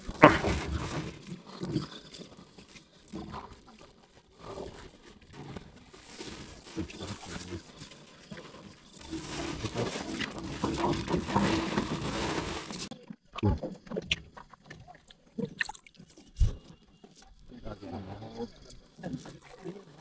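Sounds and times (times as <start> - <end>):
net and rope rustling: 0.0 - 12.9.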